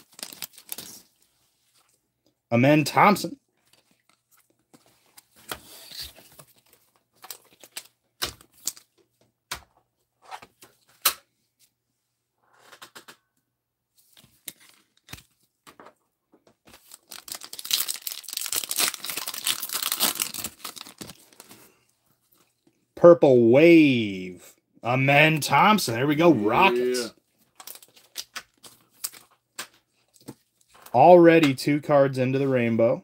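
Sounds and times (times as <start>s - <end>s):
wrapper tearing and crinkling: 0.0s - 1.2s, 5.8s - 8.9s, 16.8s - 21.6s, 27.5s - 29.4s.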